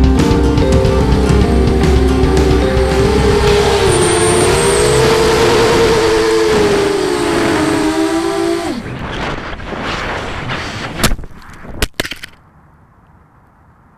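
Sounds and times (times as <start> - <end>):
drone knocking on ground: 0.0 - 6.7
drone motors whining: 0.0 - 9.2
rushing air of falling drone: 0.0 - 11.0.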